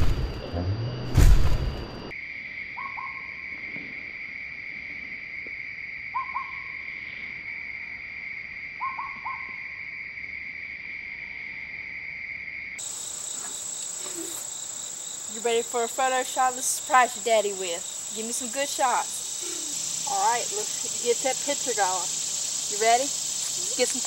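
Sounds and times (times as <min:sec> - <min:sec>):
loud low rumble: 0:00.0 - 0:02.1
high insect drone: 0:02.1 - 0:24.0.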